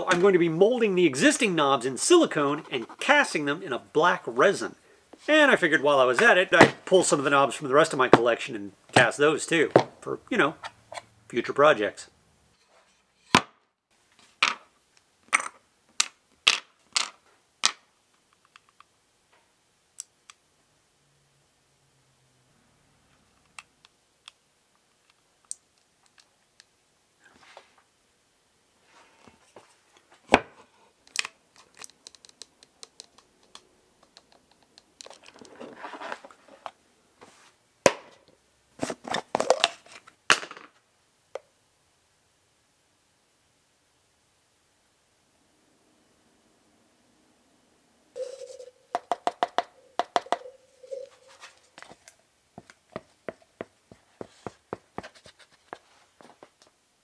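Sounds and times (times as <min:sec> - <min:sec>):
plastic knobs clicking and knocking: 0:31.1 - 0:35.5
paper rustling and scraping: 0:35.3 - 0:37.6.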